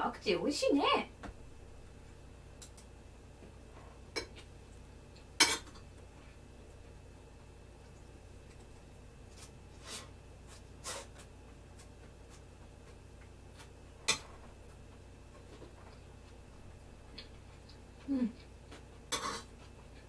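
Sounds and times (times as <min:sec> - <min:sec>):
low steady hum: 0:00.0 - 0:20.0
spoon scraping ceramic plate: 0:19.1 - 0:19.5.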